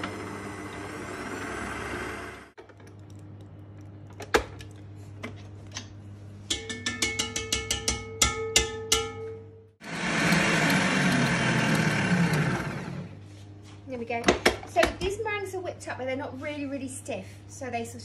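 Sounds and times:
stand mixer running: 0.0s - 2.5s, 9.8s - 13.2s
whisk tapping on metal bowl: 6.5s - 9.3s.

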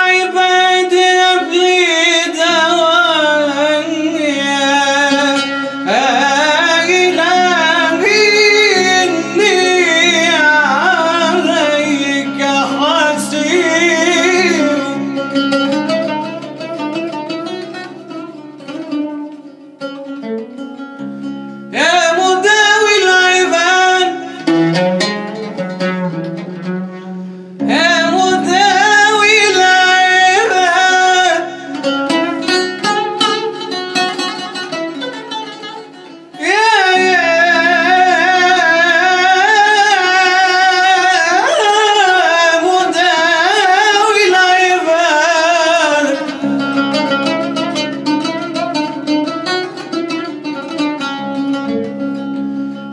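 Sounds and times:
man singing ornamented phrases: 0.0s - 16.0s, 21.7s - 25.5s, 27.6s - 32.5s, 36.4s - 47.5s
plucked string instrument: 0.0s - 52.9s.

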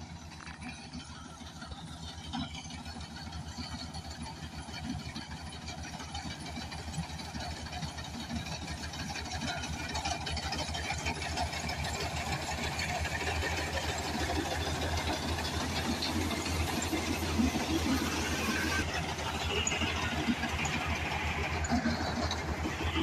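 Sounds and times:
combine harvester diesel engine: 0.0s - 23.0s.

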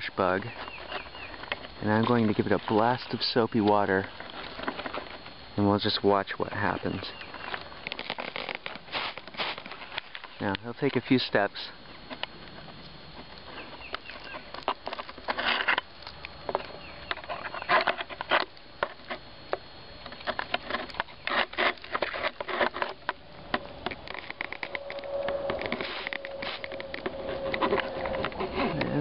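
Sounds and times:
insect buzzing: 0.0s - 29.0s
leaves crackling and rustling: 6.2s - 11.2s, 11.9s - 29.0s.

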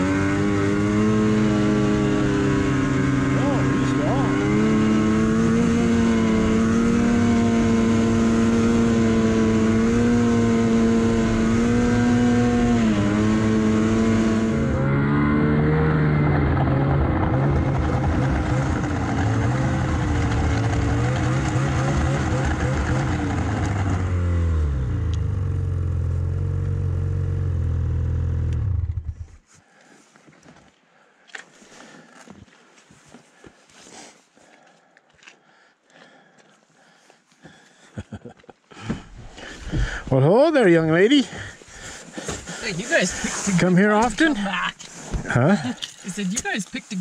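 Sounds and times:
snowmobile engine running: 0.0s - 29.4s, 38.9s - 47.0s.

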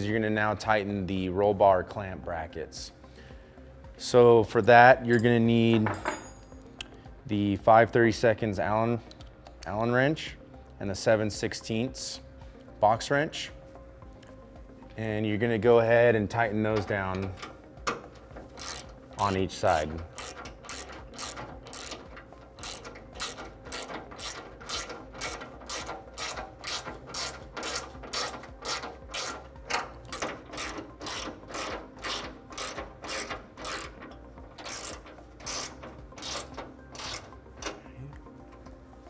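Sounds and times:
hand ratchet clicking: 16.7s - 38.3s.

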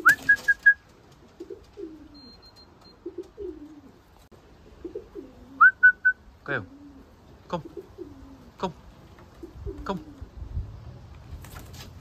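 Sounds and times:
pigeon wings flapping: 0.0s - 2.0s, 11.4s - 12.0s
pigeons cooing: 0.0s - 10.8s.

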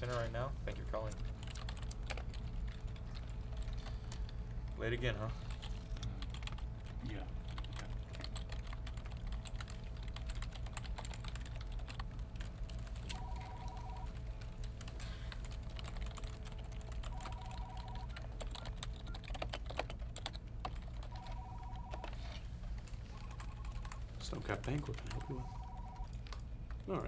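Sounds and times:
computer keyboard typing: 0.9s - 26.9s
desk telephone ringing: 13.1s - 14.1s, 17.1s - 18.1s, 21.1s - 22.3s, 25.2s - 26.1s.

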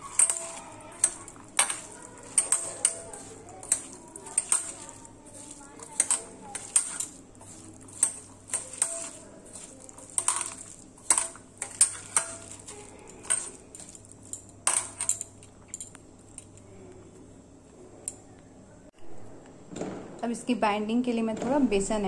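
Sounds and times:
bangles clinking on metal bowl: 0.0s - 16.6s
hand mixing food in a bowl: 0.0s - 17.8s.

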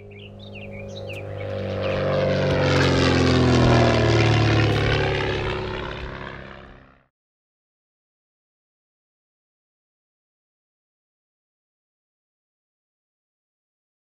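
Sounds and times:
propeller aeroplane flying past: 0.0s - 7.1s.

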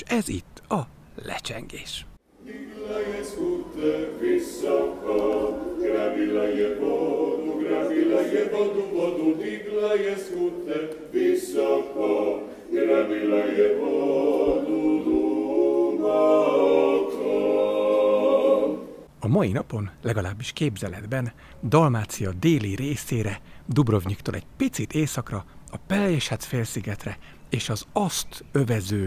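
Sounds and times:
voices singing in harmony: 2.3s - 19.1s.

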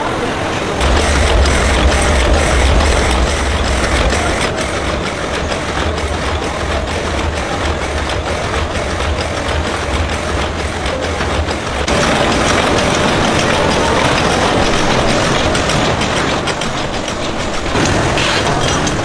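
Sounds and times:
low motor hum: 0.8s - 18.1s
mechanical clatter of quick clicks: 0.8s - 19.0s.

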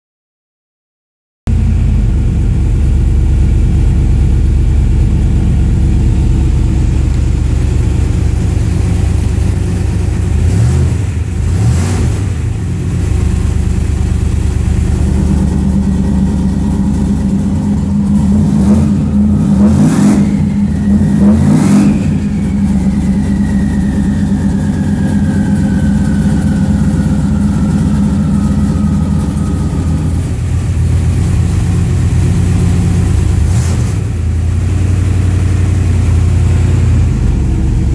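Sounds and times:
car engine idling and revving: 1.5s - 37.9s.

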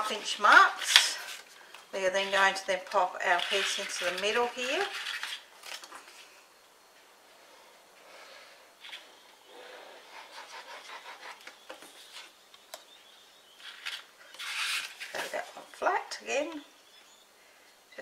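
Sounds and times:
paper rustling and sliding: 0.4s - 6.3s, 13.6s - 15.7s
paper layers scraping together: 2.2s - 5.4s, 13.6s - 15.6s.

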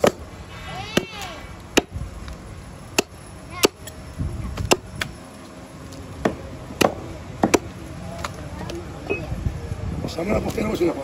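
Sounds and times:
cleaver chopping meat on wood: 6.2s - 7.7s.

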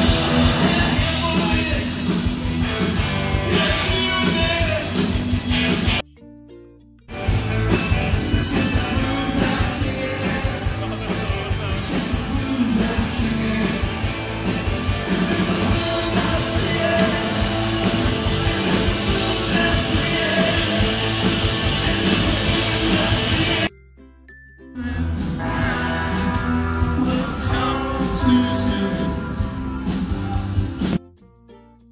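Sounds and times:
singer: 0.0s - 2.1s, 3.2s - 5.0s, 8.2s - 14.3s, 14.9s - 23.7s, 24.8s - 31.0s
drums: 0.0s - 6.0s, 7.1s - 23.7s, 24.8s - 31.5s
electric guitars: 0.0s - 6.0s, 7.1s - 23.7s, 24.8s - 31.0s.

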